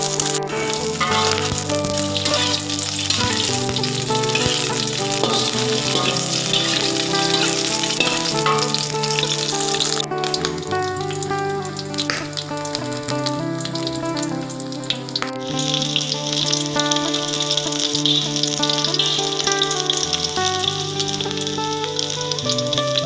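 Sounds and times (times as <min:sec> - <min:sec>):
pork fat sizzling in oil: 0:00.0 - 0:10.0.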